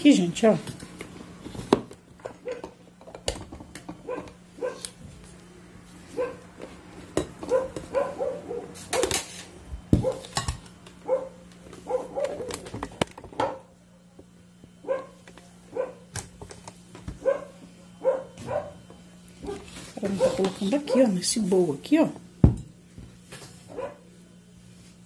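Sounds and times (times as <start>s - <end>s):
dog barking: 2.3s - 2.7s, 4.0s - 4.9s, 6.1s - 6.4s, 7.5s - 9.1s, 10.0s - 10.3s, 11.0s - 12.6s, 13.4s - 13.7s, 14.8s - 16.1s, 17.2s - 18.8s, 19.4s - 21.2s, 23.7s - 24.1s.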